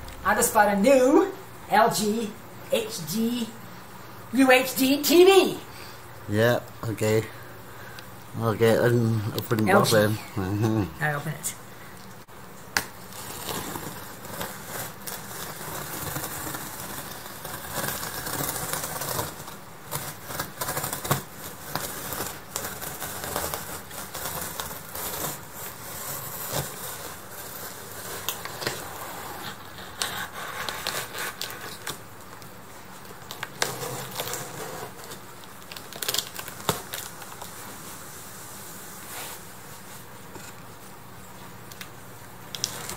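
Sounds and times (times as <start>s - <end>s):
utility knife cutting cardboard tape: 13.1s - 32.0s.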